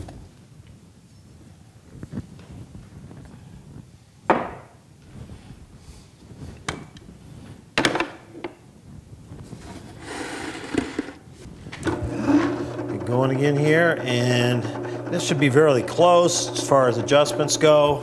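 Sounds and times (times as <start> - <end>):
scraping noise: 9.5 - 13.3.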